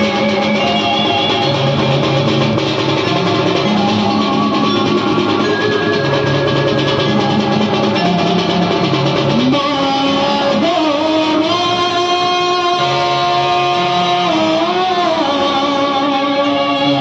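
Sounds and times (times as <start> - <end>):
drums playing fast rhythm: 0.0 - 17.0
sliding lead melody: 0.0 - 17.0.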